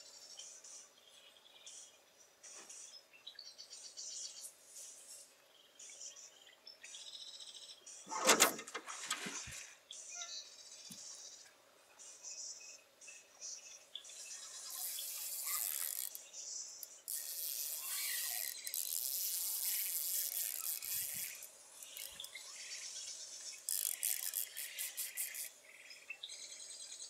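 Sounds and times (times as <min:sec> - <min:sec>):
fishing reel whirring: 0:14.7 - 0:16.2, 0:16.8 - 0:22.3, 0:23.6 - 0:25.5.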